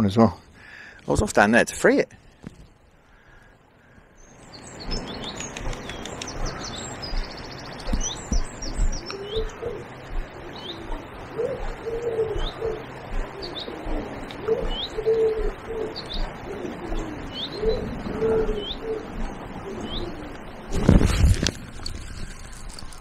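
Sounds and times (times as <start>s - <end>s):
small bird chirping: 4.2s - 16.3s
pigeon cooing: 5.6s - 20.4s.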